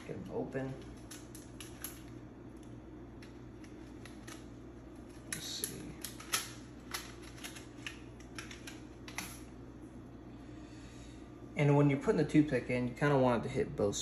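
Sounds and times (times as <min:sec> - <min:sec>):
packet crinkling and clicking: 0:00.8 - 0:09.4.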